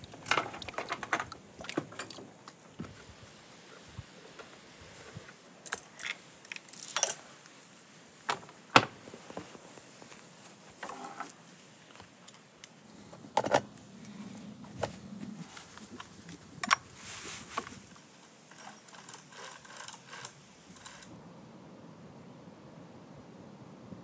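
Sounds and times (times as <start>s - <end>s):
chainsaw chain jangling against bar: 5.6s - 7.2s, 18.5s - 21.1s.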